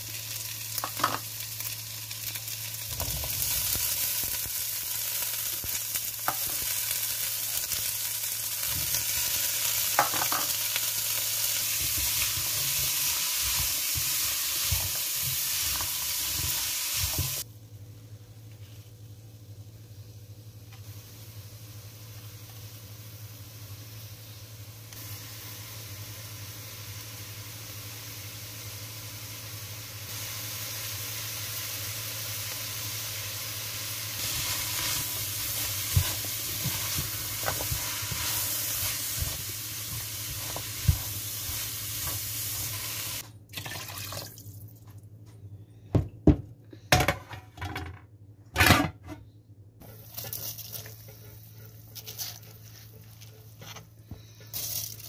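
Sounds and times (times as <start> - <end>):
vegetables sizzling in a pot: 0.0 - 17.5, 18.6 - 43.3, 54.4 - 55.0.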